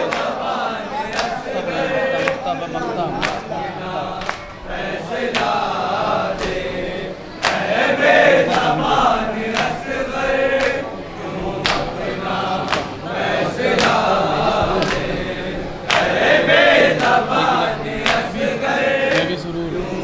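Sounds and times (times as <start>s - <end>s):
men chanting in chorus: 0.0s - 20.0s
chest-beating slaps: 7.4s - 7.7s.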